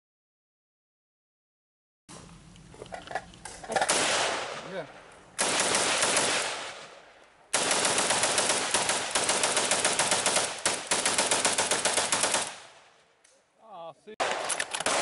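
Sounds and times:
rifle rapid fire: 3.8s - 4.8s, 5.4s - 12.9s, 14.2s - 15.0s.

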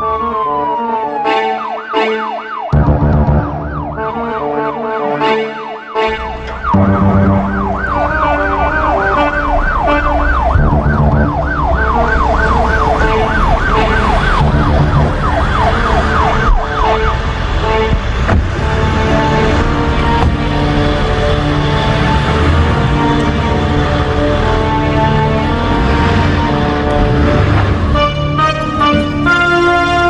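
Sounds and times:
emergency vehicle siren yelp: 0.0s - 30.0s
low music bed: 2.8s - 30.0s.

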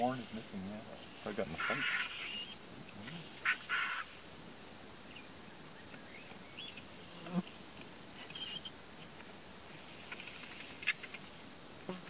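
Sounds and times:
vultures squawking: 1.3s - 4.2s.

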